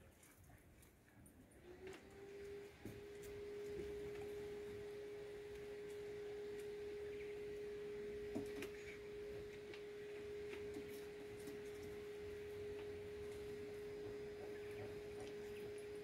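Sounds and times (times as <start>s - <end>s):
steady machine hum: 1.5s - 16.0s.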